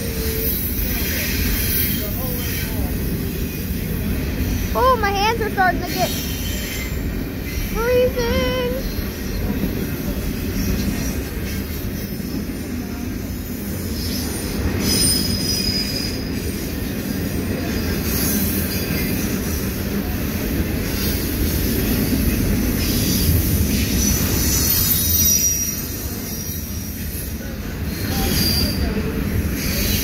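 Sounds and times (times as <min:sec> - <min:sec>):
train wheels rumbling on rails: 0:00.0 - 0:30.0
high-pitched wheel squeals: 0:14.8 - 0:16.3, 0:24.0 - 0:27.3, 0:27.9 - 0:29.0.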